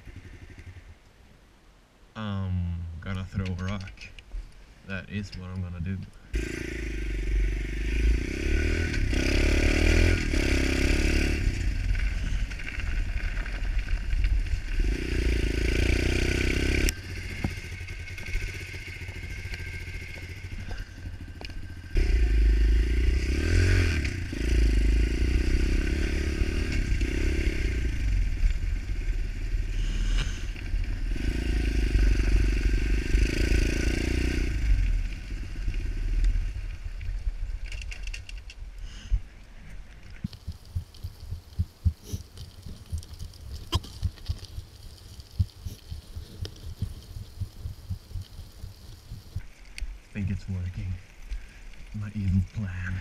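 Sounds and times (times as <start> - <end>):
small motorcycle engine revving: 6.4 - 12.5, 14.7 - 36.2.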